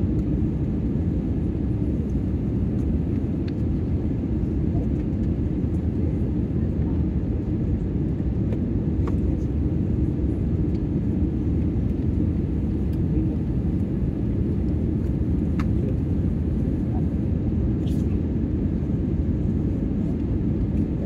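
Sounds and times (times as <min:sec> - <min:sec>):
airliner cabin rumble: 0:00.0 - 0:21.0.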